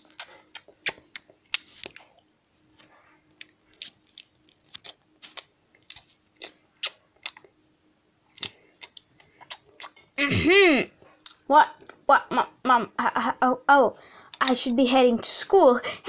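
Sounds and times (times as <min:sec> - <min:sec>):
chewing and crunching noises: 0:00.0 - 0:07.6, 0:08.3 - 0:10.1.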